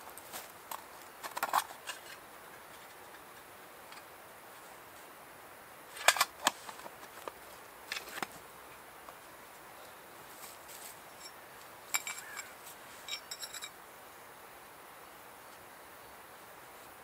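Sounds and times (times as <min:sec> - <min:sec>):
metallic clicks and clinks: 0:11.2 - 0:12.5, 0:13.1 - 0:13.8.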